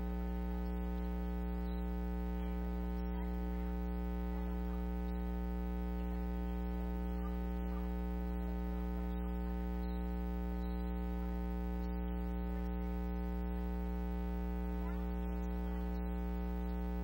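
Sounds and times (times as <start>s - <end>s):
electrical hum: 0.0s - 17.0s
faint voice at microphone: 0.0s - 17.0s.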